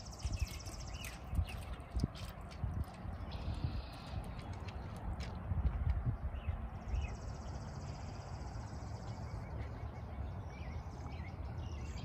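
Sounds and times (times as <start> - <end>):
songbird trills and chirps: 0.0 - 2.0, 3.1 - 4.7, 6.3 - 12.0.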